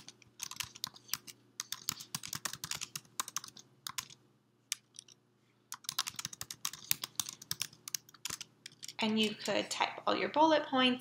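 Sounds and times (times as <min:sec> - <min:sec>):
keyboard typing clicks: 0:00.0 - 0:09.6.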